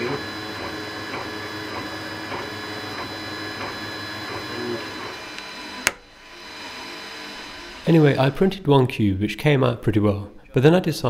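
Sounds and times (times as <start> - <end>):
stepper motors whining: 0.0 - 8.5
steady hum: 0.0 - 8.9.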